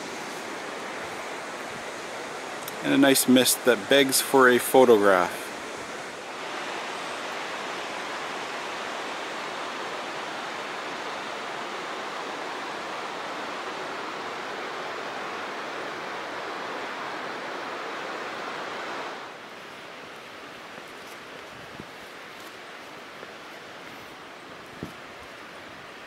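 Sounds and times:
river rushing over rocks: 0:00.0 - 0:26.0.

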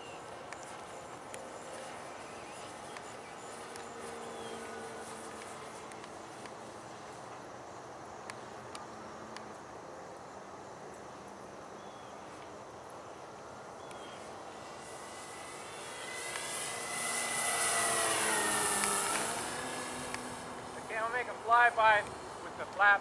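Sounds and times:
model plane engine and propeller: 0:00.0 - 0:09.8, 0:11.8 - 0:23.0.

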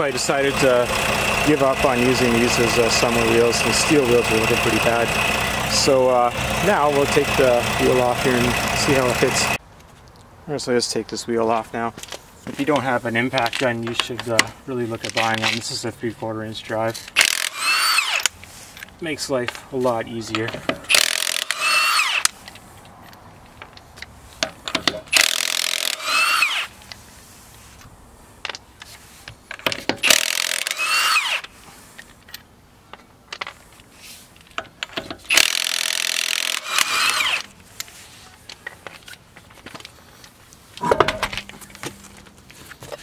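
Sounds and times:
impact wrench hammering: 0:17.2 - 0:18.3, 0:20.6 - 0:22.3, 0:24.7 - 0:26.5, 0:29.7 - 0:31.4, 0:35.0 - 0:37.5, 0:40.8 - 0:42.2.

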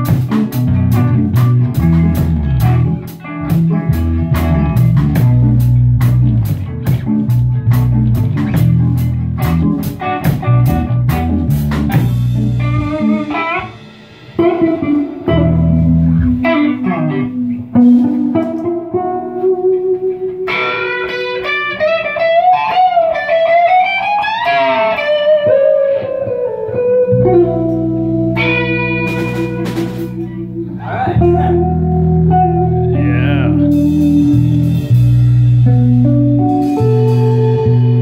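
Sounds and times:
drum kit hits: 0:00.0 - 0:17.2, 0:27.6 - 0:38.0
heavy low bass notes: 0:00.0 - 0:20.0, 0:26.3 - 0:38.0
lead electric guitar bending notes: 0:00.0 - 0:38.0
rock band jamming: 0:00.0 - 0:38.0.

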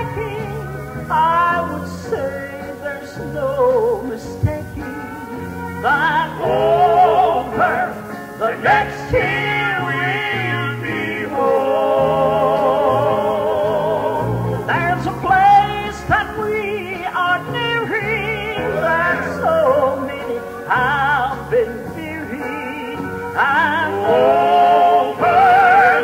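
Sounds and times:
man singing gospel: 0:01.1 - 0:26.0
steady bass line: 0:03.2 - 0:22.4.

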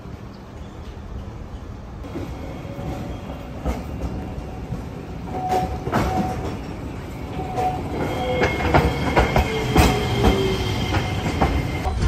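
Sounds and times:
streetcar rumbling on rails: 0:00.0 - 0:12.0
high wheel squeal: 0:07.2 - 0:11.9.

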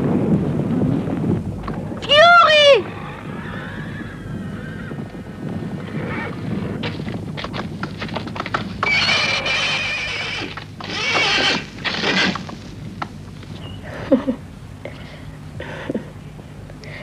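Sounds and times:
horse neighing: 0:02.8 - 0:05.0, 0:08.8 - 0:12.5
horse hoofbeats galloping: 0:02.8 - 0:13.3.

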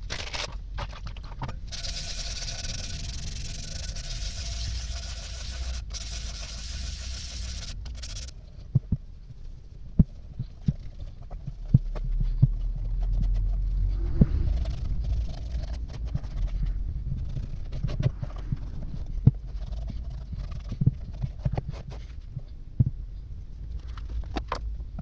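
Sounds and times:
rag rubbing: 0:01.7 - 0:08.3
sandpaper scraping metal: 0:01.7 - 0:08.3
dull low thumps: 0:08.6 - 0:10.8, 0:11.4 - 0:23.8.

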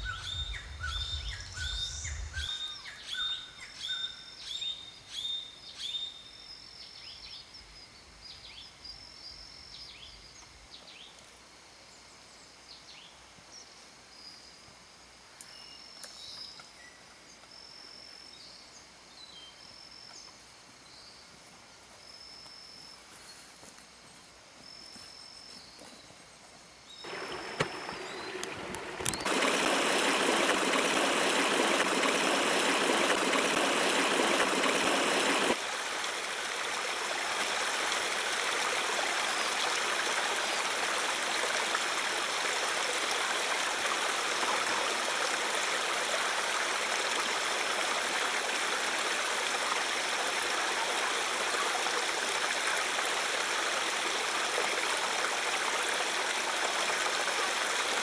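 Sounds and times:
river water running: 0:00.0 - 0:04.7, 0:27.0 - 0:58.0.

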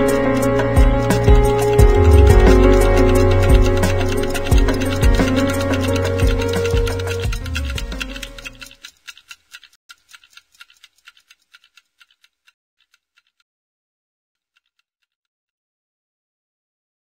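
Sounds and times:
background music: 0:00.0 - 0:08.8
clock ticking: 0:00.0 - 0:13.4, 0:14.4 - 0:15.2.

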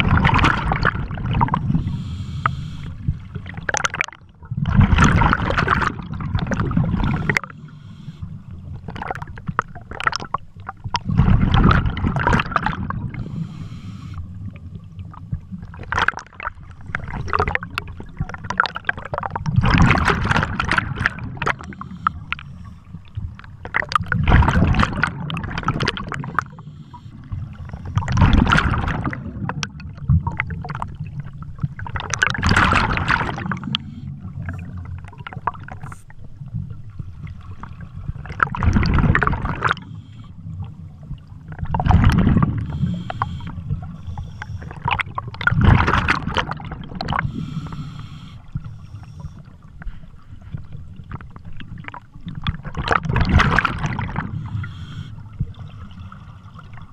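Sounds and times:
gurgling exhaled bubbles: 0:00.0 - 0:49.6, 0:50.9 - 0:56.9
diver inhaling through regulator: 0:01.5 - 0:03.2, 0:06.9 - 0:08.6, 0:13.0 - 0:14.5, 0:21.2 - 0:23.1, 0:26.2 - 0:28.6, 0:33.2 - 0:34.8, 0:39.6 - 0:40.8, 0:42.4 - 0:45.2, 0:47.0 - 0:50.1, 0:54.0 - 0:56.6.

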